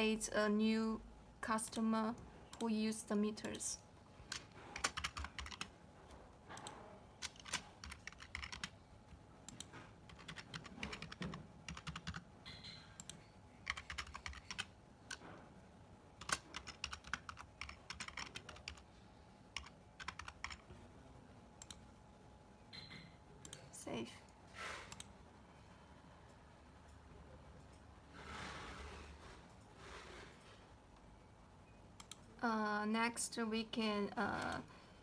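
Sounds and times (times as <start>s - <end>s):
typing on computer keyboard: 4.3s - 5.7s, 6.5s - 8.8s, 9.5s - 15.2s, 16.2s - 18.8s, 19.5s - 20.7s, 21.6s - 21.8s, 32.0s - 32.2s.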